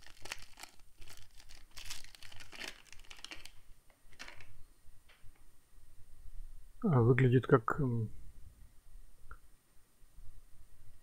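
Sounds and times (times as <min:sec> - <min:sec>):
foil wrapper crinkling: 0:00.0 - 0:04.5.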